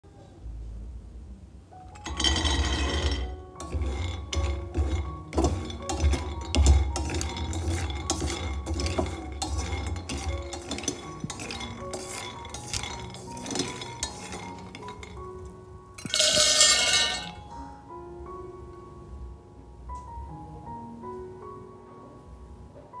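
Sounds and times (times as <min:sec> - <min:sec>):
nuts poured into a steel pan: 0:02.0 - 0:15.3, 0:16.0 - 0:17.4
nuts clattering against steel: 0:02.0 - 0:17.4.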